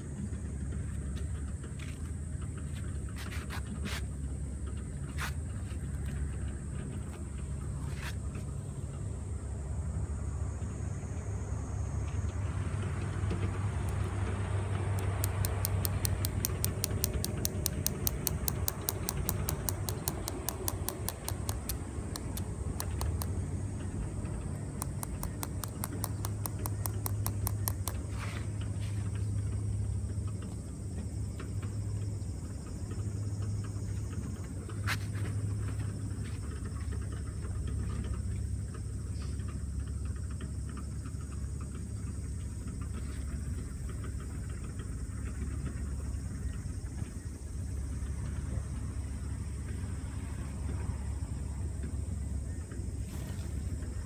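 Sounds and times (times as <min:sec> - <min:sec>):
low outdoor rumble: 0:00.0 - 0:54.0
insect ticking fast: 0:13.8 - 0:28.1
sharp click: 0:15.0 - 0:23.4, 0:24.6 - 0:28.1.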